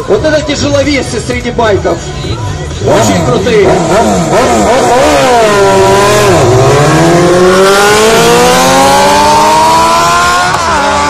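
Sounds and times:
motorcycles accelerating hard: 2.8 - 11.0.

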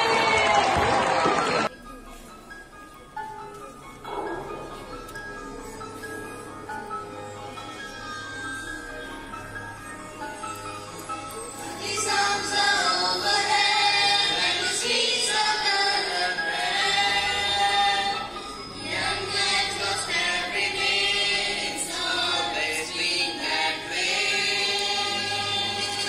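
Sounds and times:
musical accompaniment: 0.1 - 26.0
choir singing: 11.6 - 26.0.

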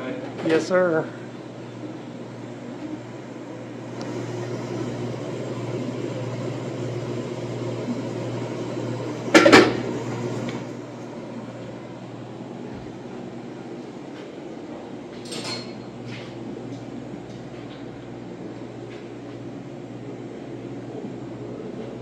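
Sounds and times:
electrical appliance humming: 0.0 - 22.0.

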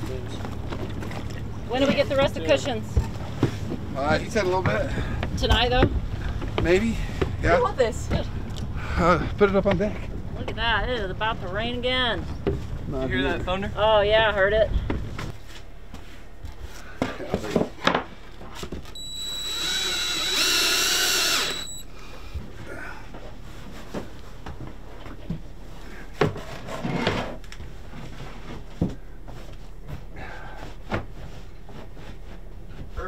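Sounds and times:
power tool motor running: 19.0 - 21.8.

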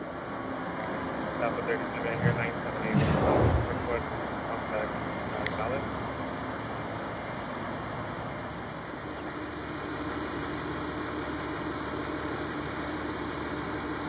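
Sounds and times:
steady low hum: 1.6 - 4.9.

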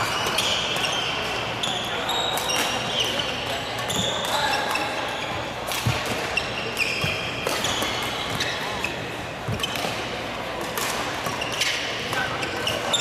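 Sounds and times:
shoes squeaking on court floor: 0.0 - 13.0
rackets smacking shuttlecock: 5.6 - 13.0.

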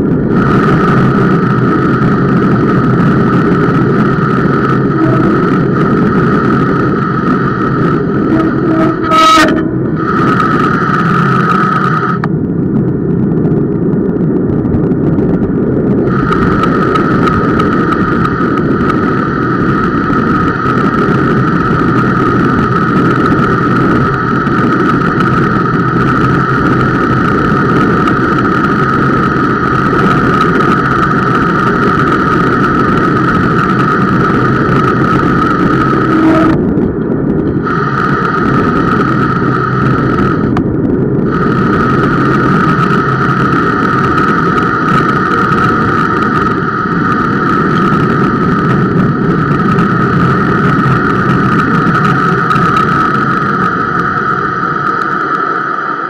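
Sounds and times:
tyre and road rumble: 0.0 - 56.0
bicycle disc brake squealing: 0.6 - 12.2, 16.2 - 36.8.

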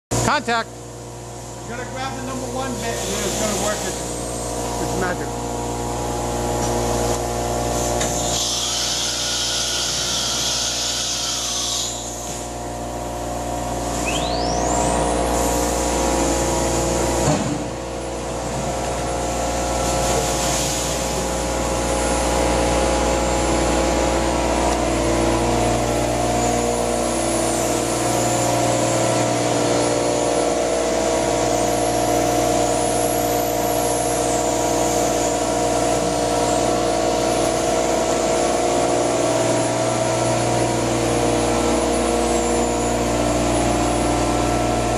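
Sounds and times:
router and vacuum pump hum: 0.1 - 44.9
spindle whine rising: 11.8 - 44.9
hiss of air: 19.8 - 21.2.

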